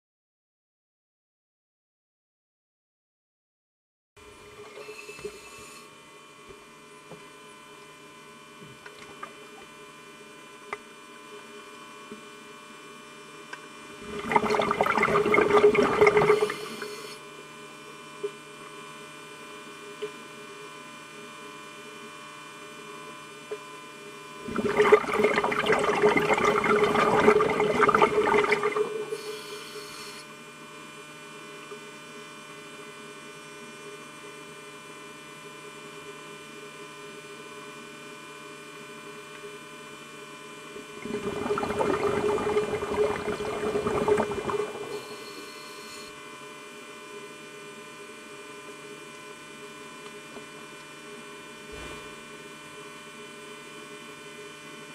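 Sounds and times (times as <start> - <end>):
steady electrical hum: 4.2 - 35.6, 38.4 - 53.5
scuba regulator exhaust bubbling: 14.0 - 16.8, 24.5 - 29.6, 41.0 - 45.2.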